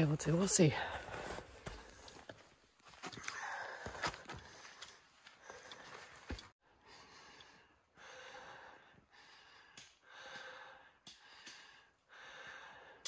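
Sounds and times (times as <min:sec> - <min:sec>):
person breathing hard: 0:03.2 - 0:13.0.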